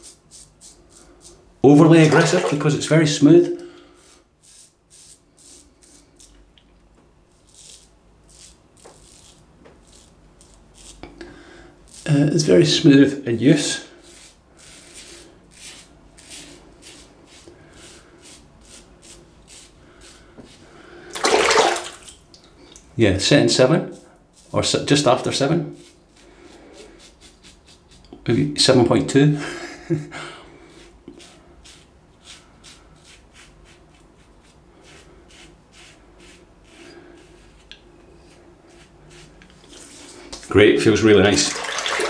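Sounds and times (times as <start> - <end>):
razor scraping stubble: 4.0 - 6.4, 7.3 - 11.2, 13.6 - 20.6, 30.8 - 40.5.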